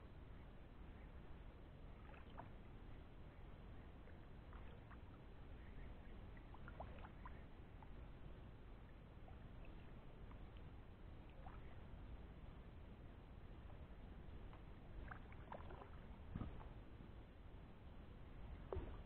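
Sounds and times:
low steady background noise: 0.0 - 19.0
paddle splashing in water: 15.0 - 16.8, 18.7 - 19.0.

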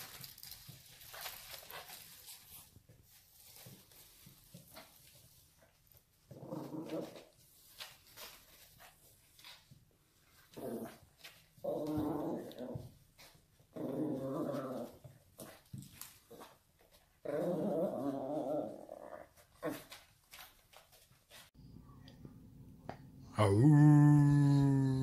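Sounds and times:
small dog growling: 6.3 - 7.3, 10.5 - 12.9, 13.7 - 15.1, 17.2 - 19.9.

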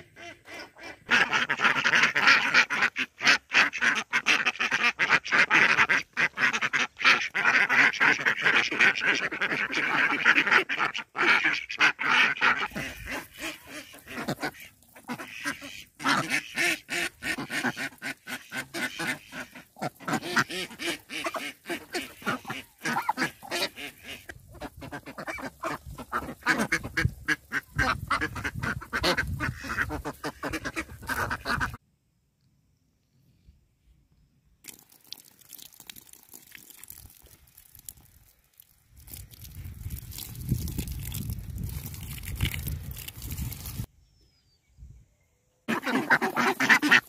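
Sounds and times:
ducks quacking: 0.0 - 31.8, 45.7 - 47.0
water drops splashing on leaves: 34.6 - 43.8.

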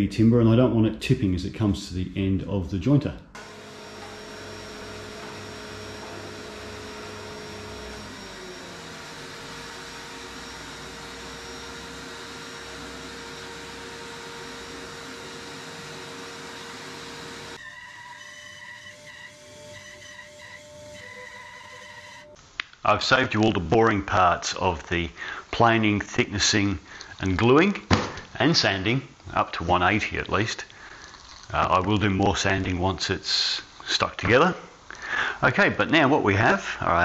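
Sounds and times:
jointer planing a board: 3.4 - 22.2
bandsaw running: 3.4 - 22.3.

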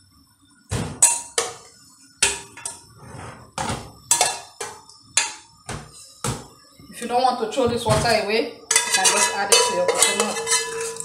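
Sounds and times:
metal cookware clattering: 0.8 - 1.6, 2.2 - 5.9, 7.6 - 11.0.

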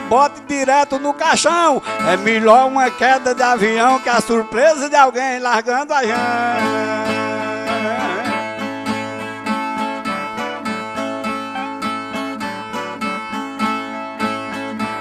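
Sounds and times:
person singing: 0.0 - 8.6
strummed stringed instruments: 0.0 - 15.0.

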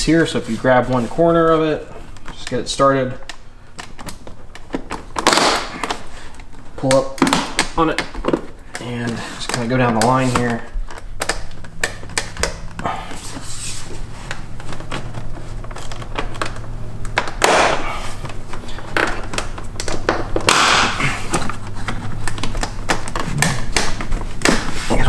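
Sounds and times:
plastic scraping rustles: 0.1 - 25.0
plastic clips snapping loose: 3.2 - 6.0, 6.8 - 12.8.

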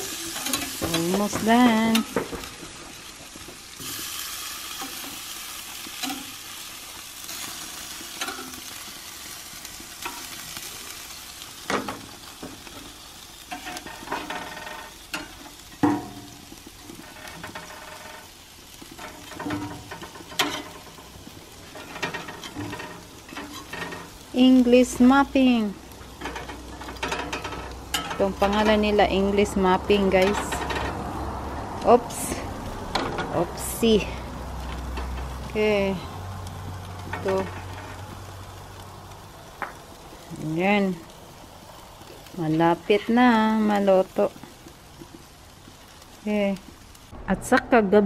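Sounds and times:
burger patties sizzling on grill: 0.0 - 47.8
spatula knocking and scraping grate: 13.5 - 18.3, 19.0 - 21.0, 21.7 - 24.2, 26.2 - 28.9, 30.1 - 31.0.

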